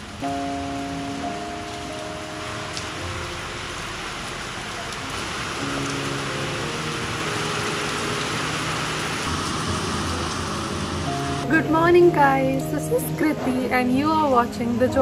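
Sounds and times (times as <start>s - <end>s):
rain-like hiss: 0.0s - 11.5s
soft background music: 0.1s - 4.2s, 5.5s - 15.0s.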